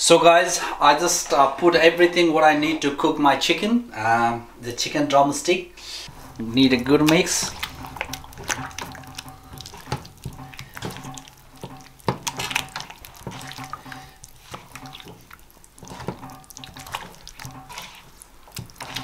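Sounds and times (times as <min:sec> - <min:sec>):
hands mixing chicken in bowl: 0:06.1 - 0:19.0
sharp clicks and knocks: 0:06.1 - 0:19.0.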